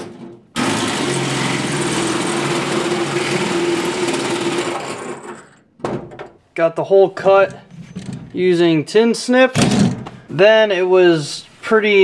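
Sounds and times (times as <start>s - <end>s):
power tool cutting sheet metal: 0.6s - 5.5s.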